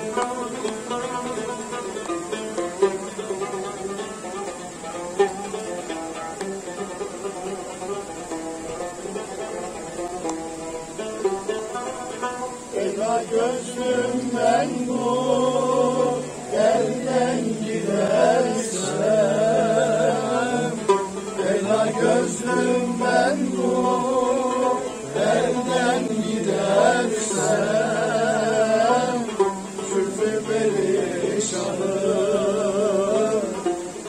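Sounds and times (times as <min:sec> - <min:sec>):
instrumental accompaniment: 0:00.0 - 0:34.0
person singing with ornaments: 0:12.6 - 0:34.0.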